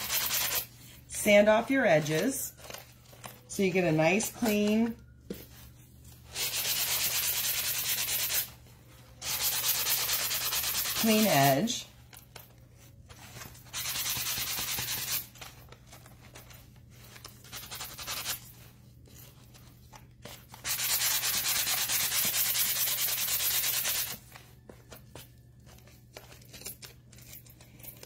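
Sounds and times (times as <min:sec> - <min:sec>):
hand sanding cardboard edges: 0:06.3 - 0:08.5, 0:09.2 - 0:11.3, 0:13.7 - 0:15.3, 0:17.4 - 0:18.4, 0:20.6 - 0:24.2.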